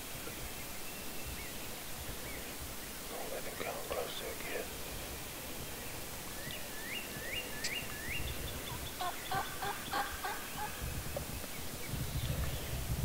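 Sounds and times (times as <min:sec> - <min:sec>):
turkey gobbling: 0:08.7 - 0:10.8.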